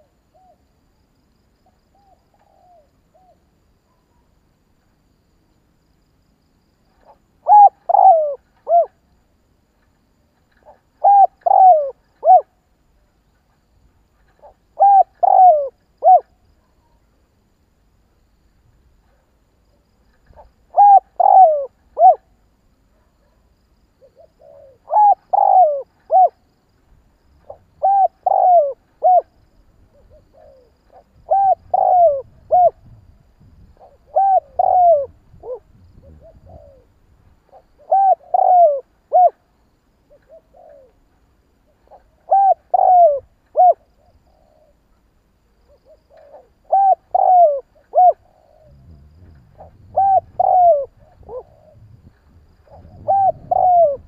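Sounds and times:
dove cooing: 1.9s - 3.4s, 7.0s - 9.0s, 10.6s - 12.6s, 14.2s - 17.0s, 20.2s - 22.3s, 24.0s - 26.5s, 27.4s - 39.5s, 40.1s - 41.1s, 41.7s - 44.8s, 45.7s - 54.0s.

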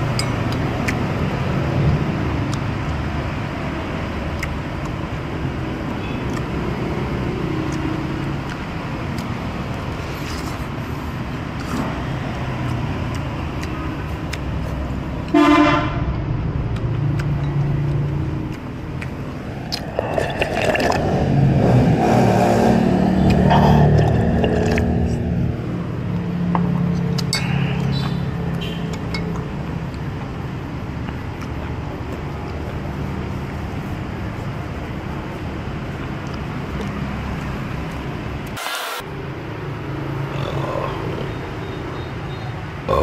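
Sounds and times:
motor vehicle passing: 0.0s - 41.9s
traffic rumble: 0.0s - 43.0s
vehicle horn toot: 15.3s - 16.0s.

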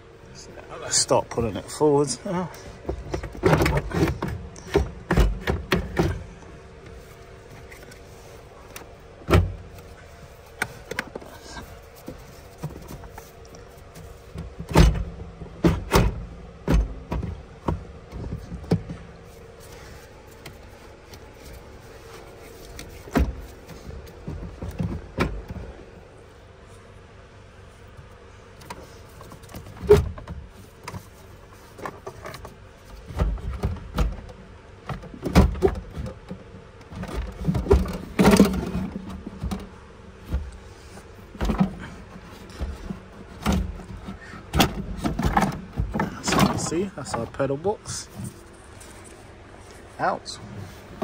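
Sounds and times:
faint steady hum: 0.0s - 51.0s
plastic and metal knocks and rattles: 2.8s - 6.3s, 14.3s - 19.1s, 23.0s - 25.8s, 31.8s - 40.6s, 41.3s - 47.3s.

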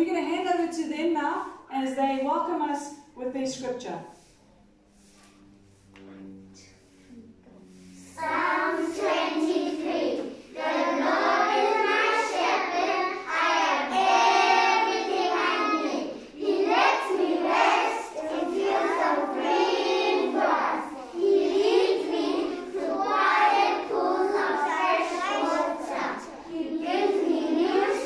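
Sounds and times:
children singing in unison: 7.7s - 28.0s.

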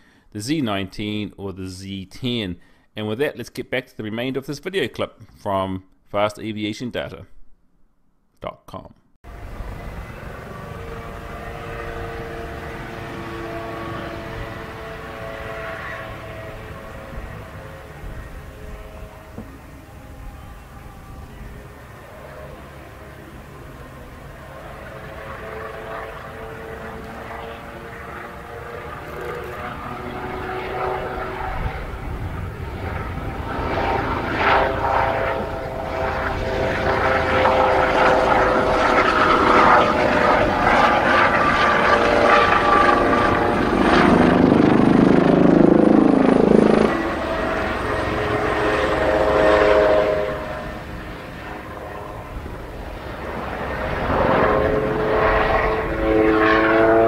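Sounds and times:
helicopter flying past: 9.3s - 57.0s.

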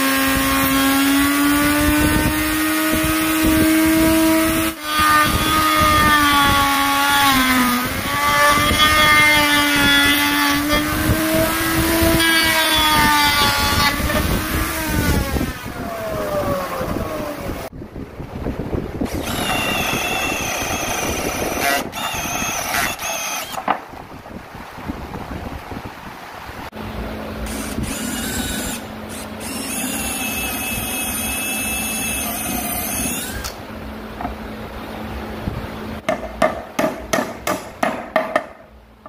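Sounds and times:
router cutting wood: 0.0s - 16.4s, 19.1s - 23.6s, 27.4s - 33.6s
cordless drill whirring: 19.1s - 23.6s, 27.5s - 33.6s.

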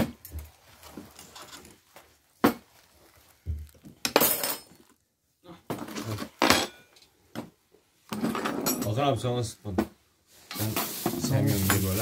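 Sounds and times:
tableware clinking and knocking: 4.0s - 4.9s, 5.7s - 7.5s, 8.1s - 9.0s.

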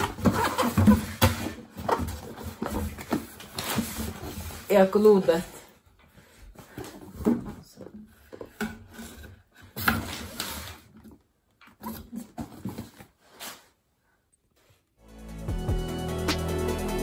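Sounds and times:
hands handling cardboard box: 0.0s - 5.5s, 6.2s - 13.8s
music: 15.0s - 17.0s.

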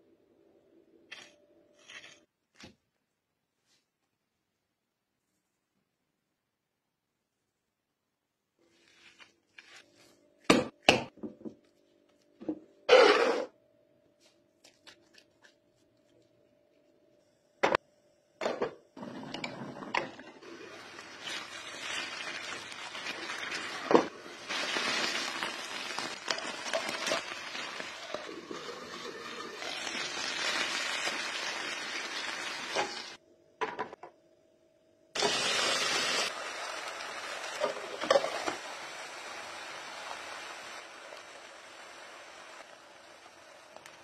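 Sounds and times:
tomato slices sizzling in oil: 20.3s - 33.2s, 35.2s - 44.0s.

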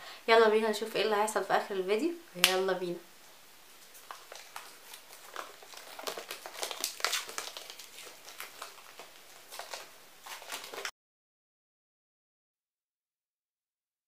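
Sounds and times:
plastic wrap crinkling: 3.6s - 10.9s.

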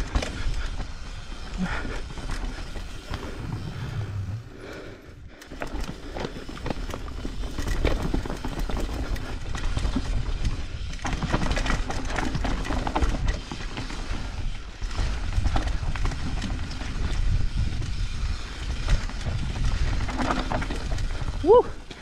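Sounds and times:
bike rattling and clattering: 0.0s - 22.0s
bike tyres rolling over roots and rocks: 0.0s - 22.0s
wind rumble on microphone: 14.3s - 21.7s.

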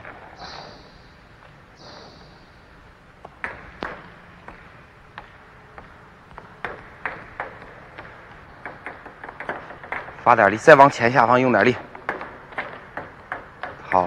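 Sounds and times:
ping pong balls bouncing: 3.2s - 11.0s, 11.7s - 14.0s.

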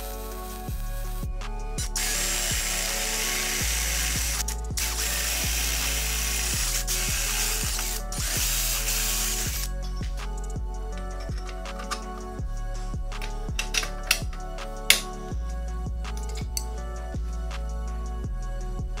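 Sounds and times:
background music: 0.0s - 19.0s
power drill boring through steel: 1.8s - 9.7s.

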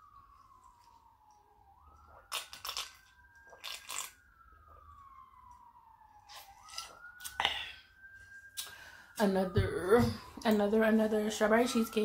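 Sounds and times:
distant siren wailing: 0.0s - 12.0s
food crunching and chewing: 0.2s - 7.6s.

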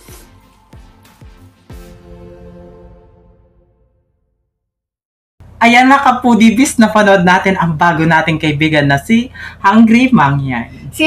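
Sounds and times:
electronic music: 0.0s - 4.0s.

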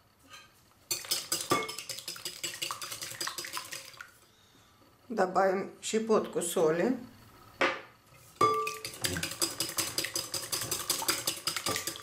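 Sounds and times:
wire whisk clinking against glass bowl: 8.4s - 12.0s.

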